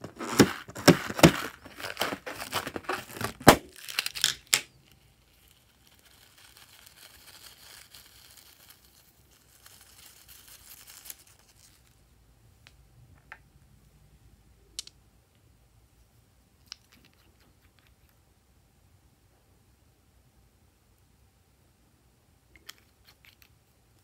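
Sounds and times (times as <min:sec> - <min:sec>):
faint rustling of balloon: 0:00.0 - 0:03.5
scissors cutting rubber balloon: 0:00.0 - 0:03.6.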